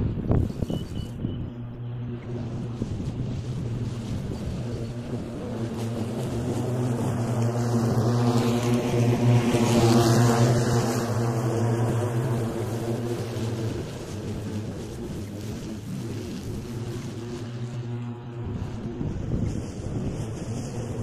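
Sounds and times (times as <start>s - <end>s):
ride-on lawnmower cutting grass: 0.0s - 21.0s.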